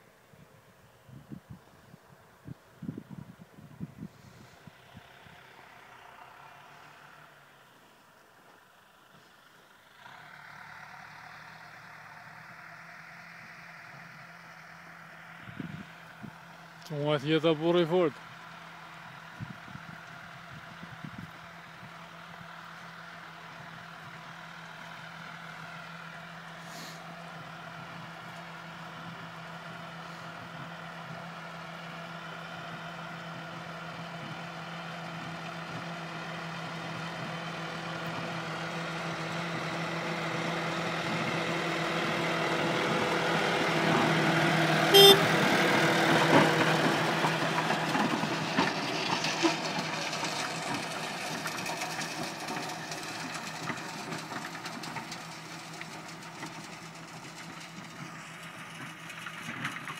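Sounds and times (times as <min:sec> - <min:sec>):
tractor diesel engine: 0:00.0 - 0:59.9.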